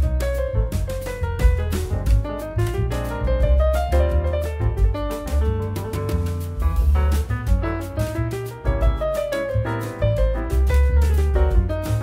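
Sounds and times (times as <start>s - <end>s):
piano melody with beat: 0.0s - 12.0s.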